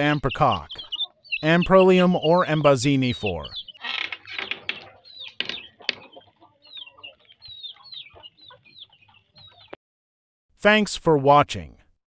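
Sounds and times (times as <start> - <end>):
chickens calling: 0.0 - 9.8
sharp knocks: 4.0 - 6.2.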